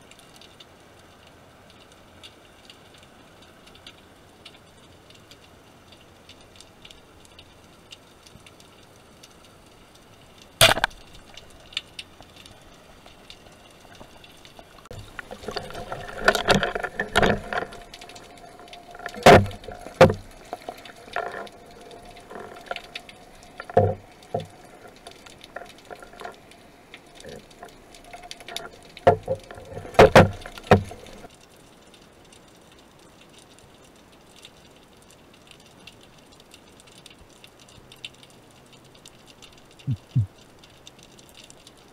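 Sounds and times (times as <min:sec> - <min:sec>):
bubbling water: 0:10.1 - 0:31.3, 0:39.6 - 0:40.7
speargun firing crack: 0:10.6 - 0:10.9.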